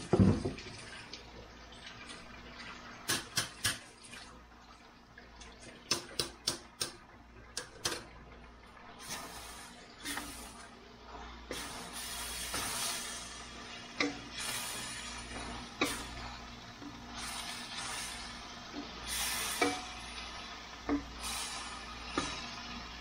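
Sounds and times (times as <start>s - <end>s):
vegetables hissing in wok: 11.5s - 13.7s, 14.3s - 16.3s, 17.1s - 23.0s.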